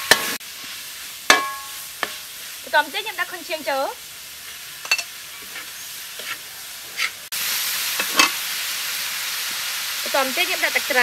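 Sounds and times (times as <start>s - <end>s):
food sizzling in a wok: 0.0s - 11.0s
metal spatula clinking: 4.8s - 5.1s.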